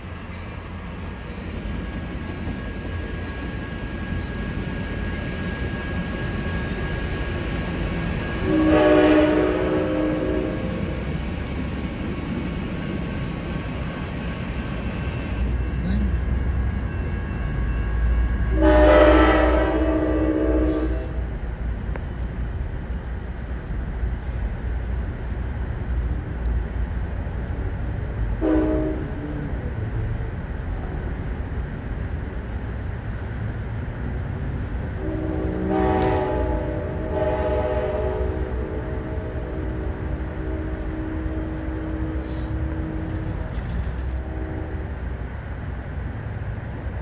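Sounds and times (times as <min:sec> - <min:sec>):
low rumble of moving train: 0:00.0 - 0:47.0
train horn blasts: 0:08.3 - 0:11.1, 0:15.7 - 0:21.4, 0:28.3 - 0:29.4, 0:35.0 - 0:45.0.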